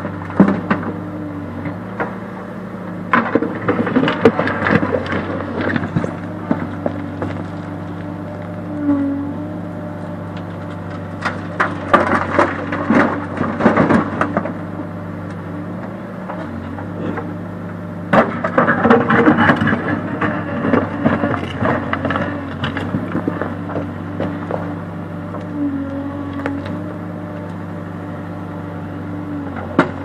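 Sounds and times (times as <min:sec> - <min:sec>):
diesel engine running: 0:00.0 - 0:30.0
rocks clattering and scraping: 0:03.1 - 0:08.8, 0:10.3 - 0:14.6, 0:18.1 - 0:24.8.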